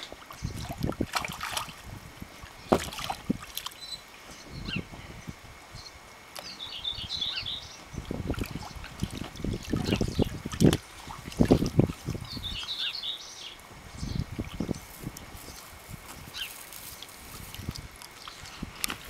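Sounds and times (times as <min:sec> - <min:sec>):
birds chirping: 0:00.0 - 0:01.7, 0:02.4 - 0:19.0
water sloshing and splashing: 0:00.0 - 0:04.6, 0:07.8 - 0:12.8, 0:13.7 - 0:19.0.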